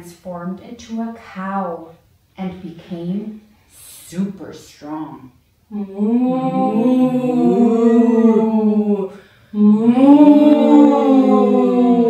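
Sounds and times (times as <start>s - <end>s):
women mooing like cows: 5.7s - 12.0s.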